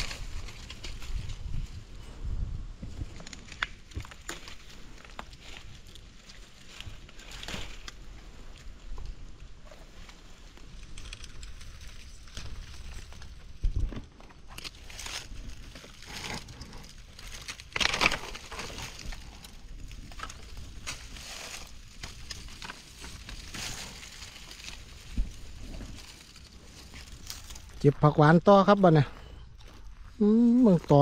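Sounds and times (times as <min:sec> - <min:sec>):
leaf litter rustling and crackling: 0:03.0 - 0:08.7, 0:14.4 - 0:29.0.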